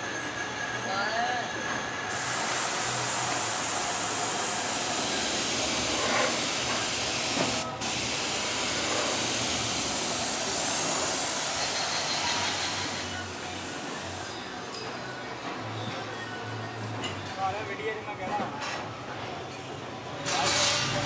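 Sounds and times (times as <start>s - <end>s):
paint spray gun hissing: 2.1s - 14.3s.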